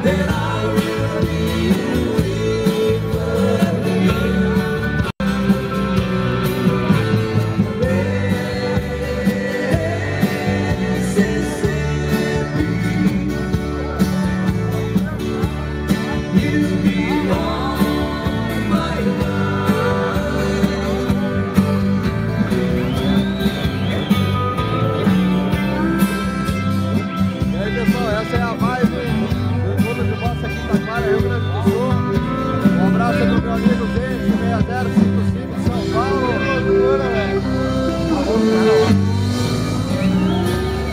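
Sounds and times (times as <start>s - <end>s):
person singing: 0.0s - 14.2s, 15.9s - 22.0s
bass line: 0.0s - 40.9s
live band playing: 0.0s - 40.9s.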